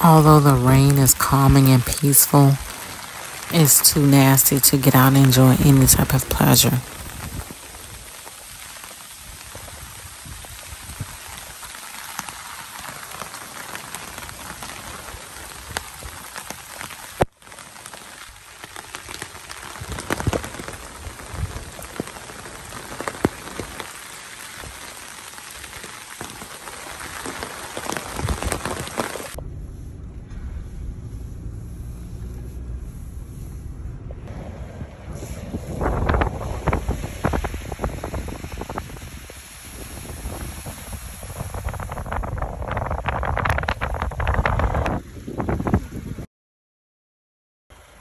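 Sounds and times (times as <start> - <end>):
raindrops ticking close by: 0.0 - 29.4
rain on trees and foliage: 0.0 - 46.2, 47.7 - 48.0.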